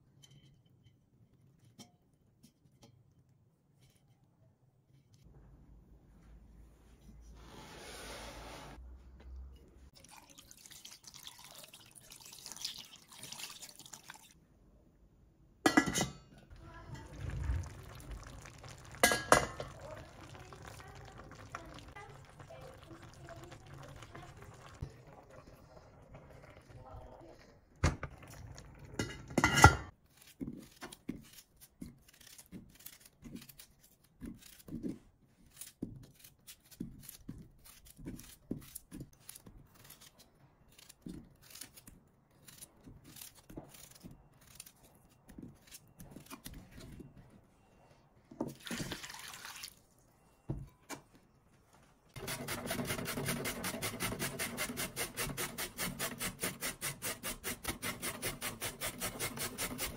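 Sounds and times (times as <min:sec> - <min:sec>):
running water: 0:10.0 - 0:14.3, 0:16.5 - 0:28.7
food being grated: 0:52.2 - 0:59.9.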